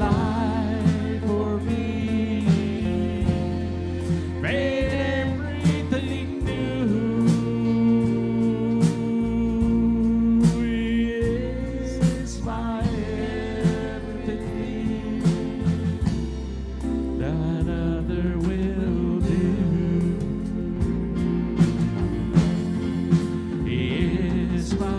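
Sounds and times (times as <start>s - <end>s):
acoustic guitar: 0.0s - 24.9s
drum kit beat: 0.0s - 24.9s
keyboard: 0.0s - 24.9s
person singing: 0.0s - 24.9s.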